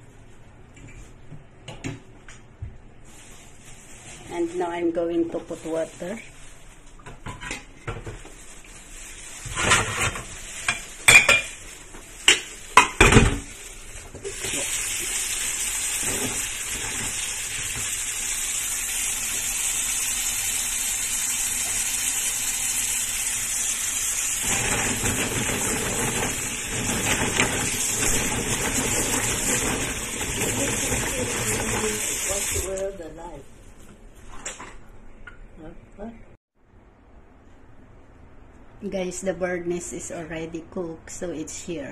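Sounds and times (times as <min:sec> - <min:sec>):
faucet running into pot: 0:14.2 - 0:32.8.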